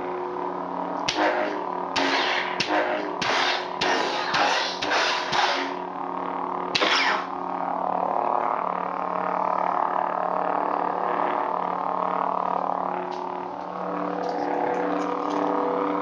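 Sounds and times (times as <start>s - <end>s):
lightsaber hum: 0.0s - 16.0s
loud effect burst: 1.1s - 5.8s, 6.7s - 7.3s.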